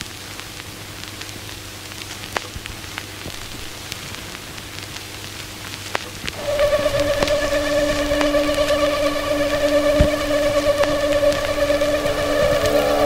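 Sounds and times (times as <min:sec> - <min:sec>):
vinyl crackle and hiss: 0:00.0 - 0:13.0
low steady hum: 0:06.3 - 0:13.0.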